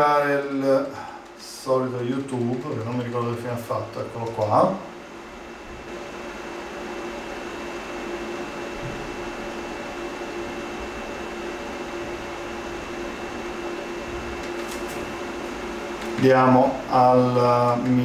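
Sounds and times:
projector cooling fan running: 0.0 - 18.0.

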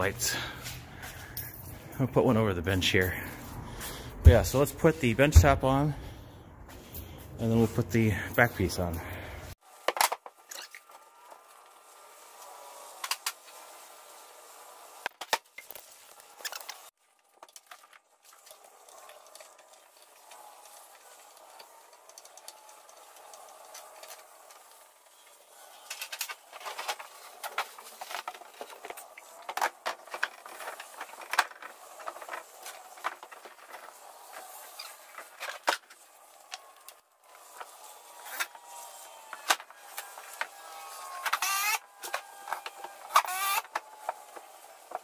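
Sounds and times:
cordless drill whirring: 36.0 - 45.0.

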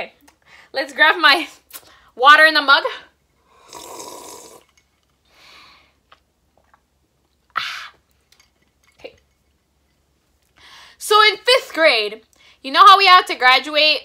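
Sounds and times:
person sipping water: 3.5 - 9.7
swallowing and mouth clicks: 6.0 - 8.2.

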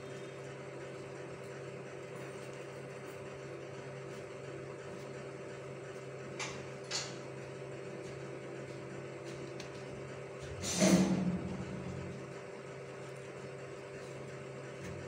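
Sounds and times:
steady low hum: 0.0 - 15.0
brief scrape: 10.6 - 11.5.

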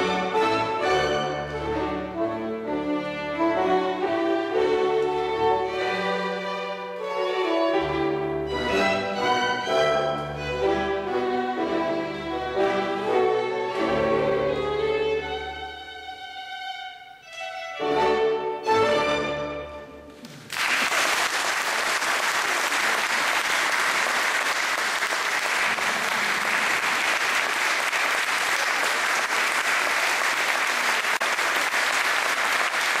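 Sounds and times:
chamber ensemble playing chords: 0.0 - 20.1
audience applause: 20.2 - 33.0.

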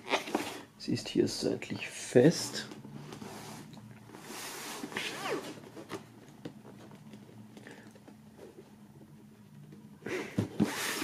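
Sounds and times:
cardboard rubbing with squeak: 4.2 - 5.9, 10.5 - 11.0.

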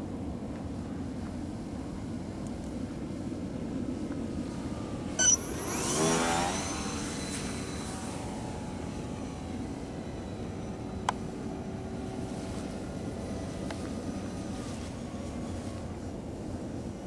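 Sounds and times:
model airplane motor and propeller: 0.0 - 17.0.

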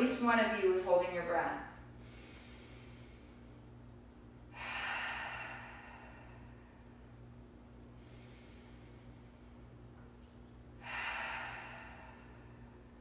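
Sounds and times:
low steady hum: 0.0 - 13.0
woman breathing deeply: 1.9 - 3.7, 4.5 - 9.8, 10.7 - 13.0.

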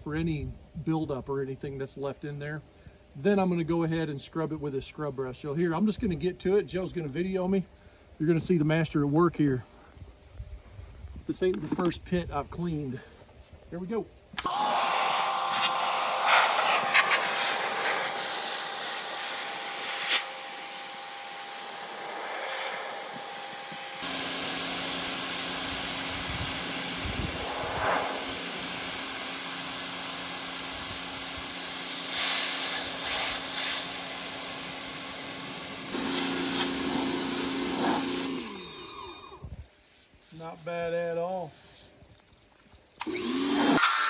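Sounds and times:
pressure washer spraying metal: 14.5 - 38.3
low hum: 16.7 - 31.4.

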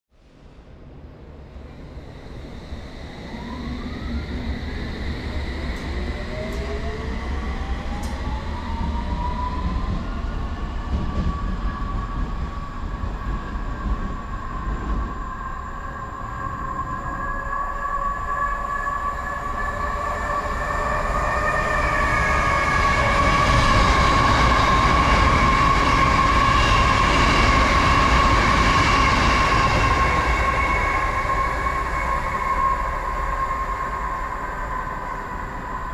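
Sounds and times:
approaching train rumble and hum: 0.2 - 35.9
train traction motor whine: 1.6 - 10.0.

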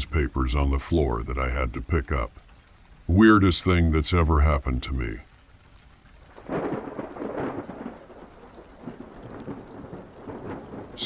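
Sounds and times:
steady rain: 0.0 - 11.0
thunder rumbling: 6.3 - 11.0.

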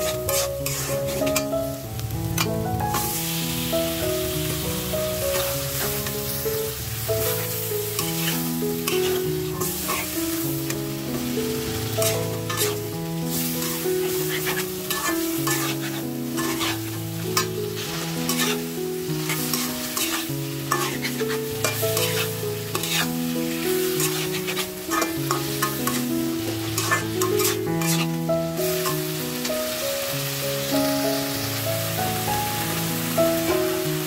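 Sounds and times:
metal spatula scraping pan: 0.0 - 1.5, 7.2 - 10.7, 11.5 - 29.1
food sizzling: 0.0 - 34.0
slow background music: 0.0 - 34.0.

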